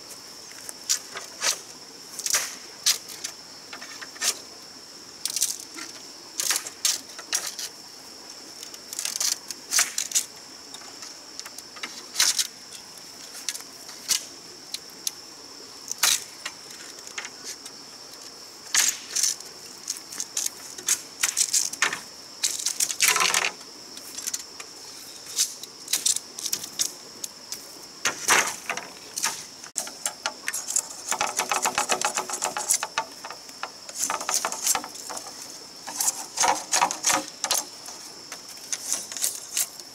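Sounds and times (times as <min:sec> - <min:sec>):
machete crackling along bamboo: 0:00.8 - 0:04.4, 0:05.3 - 0:07.8, 0:08.7 - 0:10.4, 0:15.9 - 0:17.7, 0:18.7 - 0:24.6, 0:25.2 - 0:39.9
bamboo cracking and snapping: 0:08.6 - 0:10.3, 0:18.7 - 0:24.4, 0:28.1 - 0:39.9.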